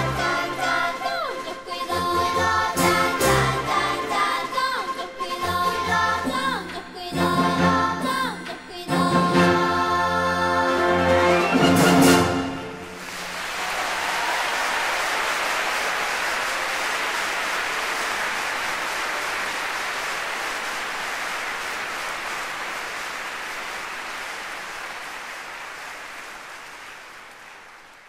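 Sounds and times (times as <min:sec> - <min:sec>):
audience applauding: 0:12.9 - 0:28.0.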